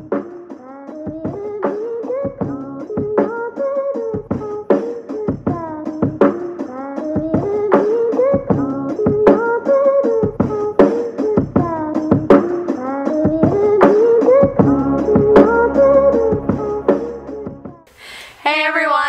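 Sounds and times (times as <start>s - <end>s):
sharp percussion hits: 13.6s - 17.8s
pitch-bending melodic line: 14.6s - 17.9s.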